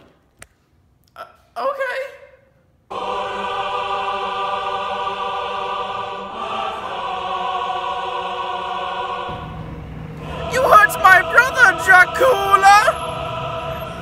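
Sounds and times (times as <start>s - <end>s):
choir singing held chords: 2.8s - 14.0s.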